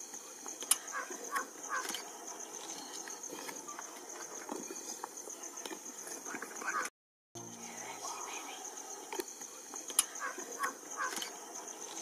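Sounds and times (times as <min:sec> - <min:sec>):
steady high-pitched drone: 0:07.4 - 0:12.0.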